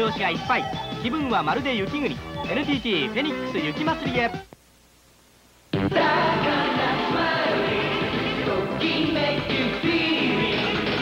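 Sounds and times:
jingle music with singing: 5.9s - 11.0s.

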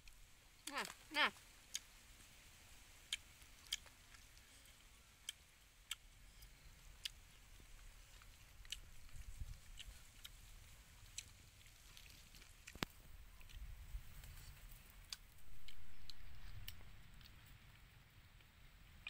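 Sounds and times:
person chewing: 3.1s - 17.4s.

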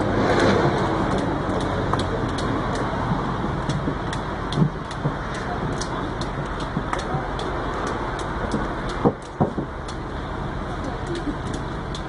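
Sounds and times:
background rumble: 0.0s - 12.0s
loud thumps: 3.0s - 7.5s, 8.4s - 9.8s.

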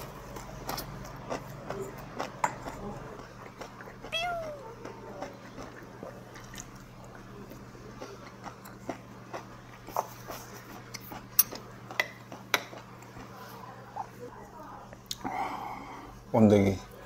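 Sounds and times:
person chewing and smacking food: 0.0s - 13.3s.

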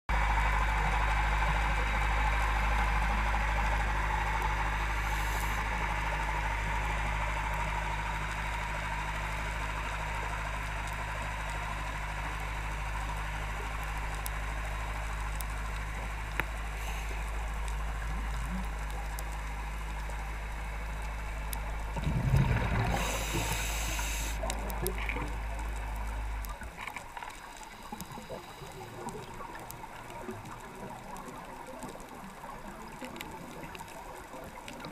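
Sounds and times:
underwater low hum and hiss: 0.1s - 34.9s
diver exhaling bubbles: 22.0s - 25.2s.

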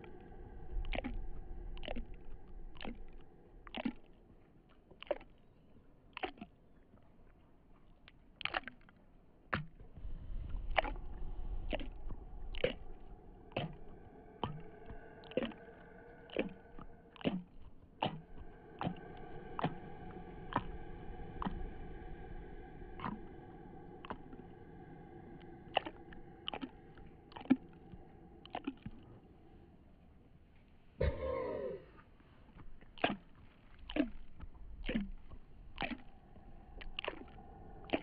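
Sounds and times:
low rumble: 0.0s - 5.0s, 9.4s - 32.9s, 33.6s - 38.0s
layered drone: 10.0s - 17.2s, 18.1s - 29.6s.

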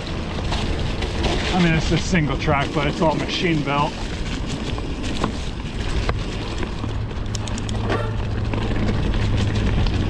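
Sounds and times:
bike clicks and rattles: 0.0s - 10.0s
bike tyres crackling on dirt: 0.0s - 10.0s
low steady rumble: 0.0s - 10.0s.

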